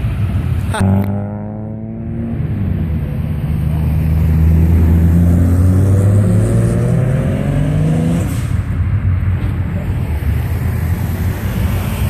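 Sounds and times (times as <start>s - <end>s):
car engine accelerating past: 0.8s - 8.5s.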